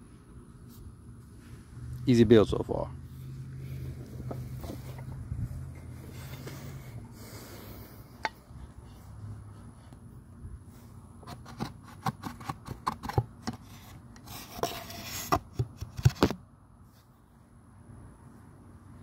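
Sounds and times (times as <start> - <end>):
short scraping rub: 3.1 - 8.0, 13.0 - 15.4.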